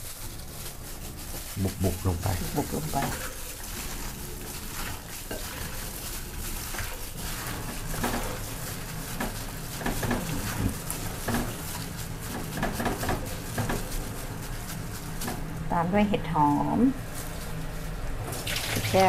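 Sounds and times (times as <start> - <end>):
utensil scraping a bowl: 0.6 - 15.5.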